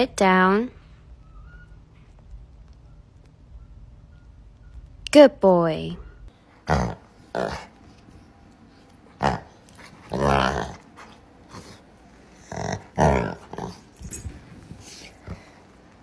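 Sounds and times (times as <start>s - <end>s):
dog play growling: 6.6s - 8.2s, 8.8s - 16.0s.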